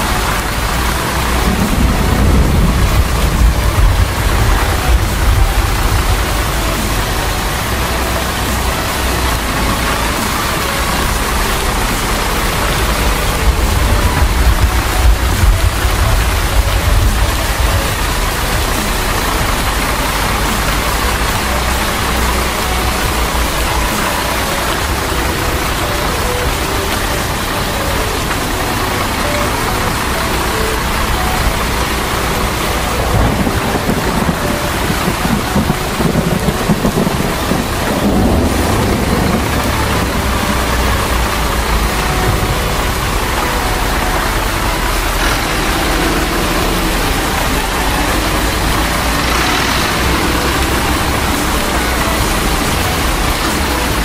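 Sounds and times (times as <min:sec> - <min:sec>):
heavy rain hissing: 0:00.0 - 0:54.0
low rumble: 0:00.1 - 0:24.3, 0:31.4 - 0:54.0.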